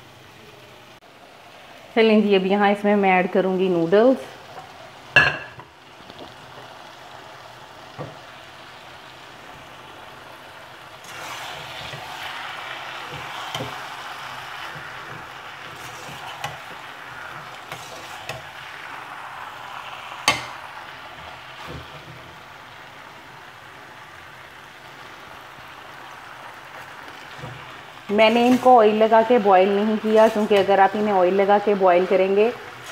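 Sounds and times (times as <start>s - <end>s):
noodles sizzling in a wok: 0.0s - 32.9s.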